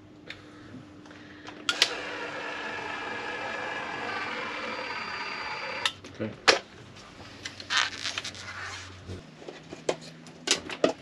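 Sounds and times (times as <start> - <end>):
caulking gun motor running: 1.7 - 5.9.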